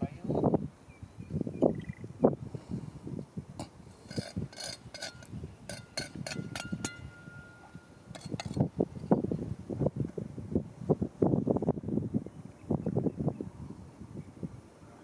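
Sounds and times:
hard clicks and ringing clinks: 4.6s - 8.6s.

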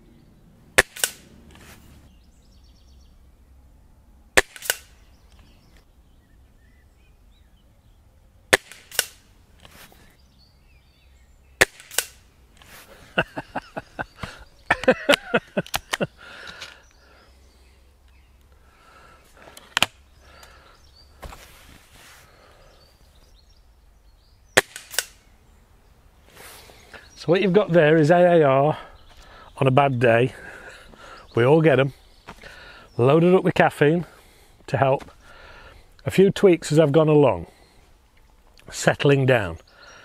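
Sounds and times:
air rifle shot crack: 0.8s - 1.4s, 4.4s - 5.0s, 8.5s - 9.3s, 11.6s - 12.3s, 24.5s - 25.3s.

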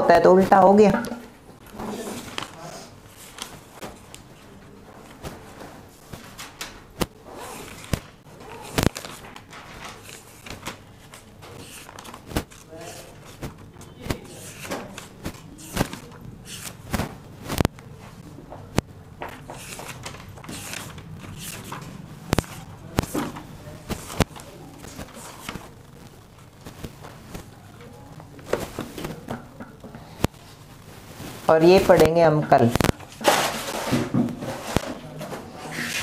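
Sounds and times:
faint indistinct voices: 7.1s - 9.4s, 12.5s - 16.9s, 21.5s - 30.7s.

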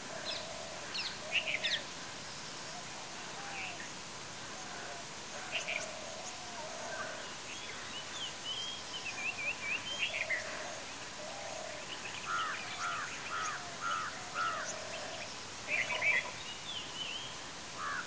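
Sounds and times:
background hiss: 0.0s - 18.0s
wild birds calling: 0.1s - 1.8s, 4.5s - 16.6s, 17.8s - 18.0s.

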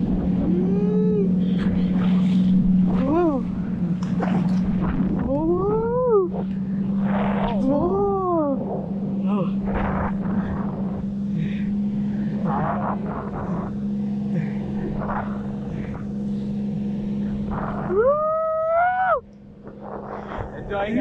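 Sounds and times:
motorboat engine humming: 0.0s - 21.0s
short voices: 0.4s - 4.0s.

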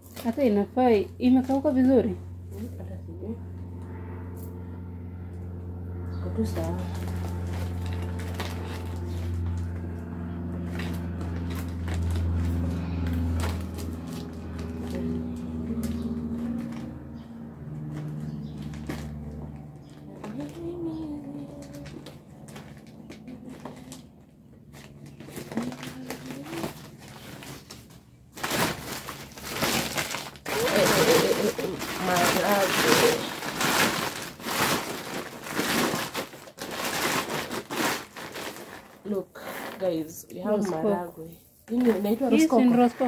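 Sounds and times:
steady low hum: 0.0s - 43.0s
plastic sack rustling: 6.4s - 17.2s, 24.6s - 40.2s.

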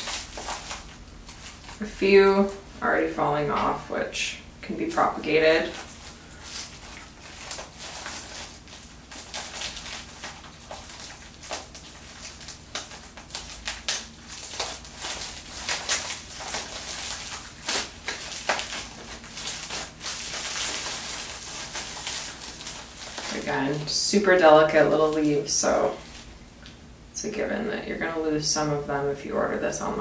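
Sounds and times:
plastic rustle: 0.0s - 1.9s, 4.9s - 26.4s
plastic wrap crinkling: 0.0s - 2.8s, 4.8s - 26.8s.

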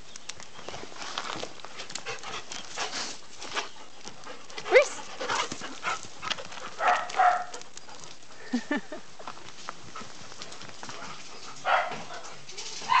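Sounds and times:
clicks and rustles: 0.0s - 8.3s.

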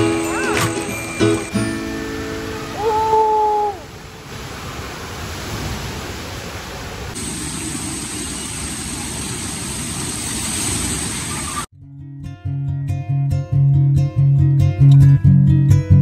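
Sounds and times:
water rushing and splashing: 0.0s - 11.7s.

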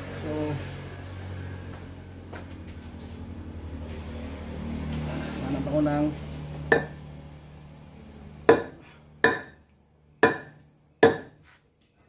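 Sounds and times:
wooden mallet knocking on iron: 6.7s - 7.0s, 8.5s - 9.6s, 10.2s - 11.4s.

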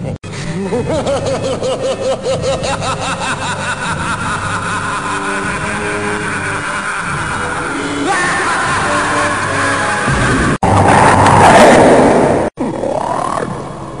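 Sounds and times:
creature rumbling call: 10.7s - 13.8s.

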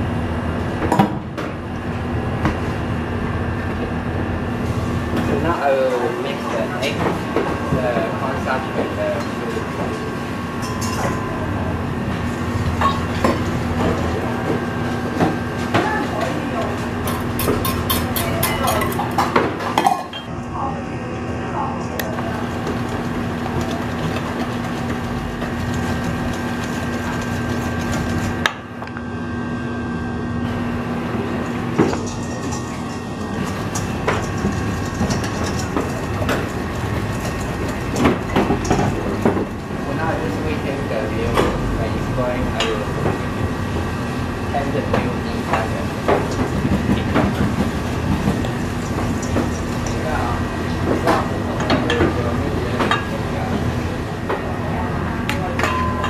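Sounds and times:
steady mechanical hum: 0.0s - 56.0s
whisk beating in metal bowl: 22.0s - 28.5s, 31.8s - 40.8s, 45.4s - 53.8s.

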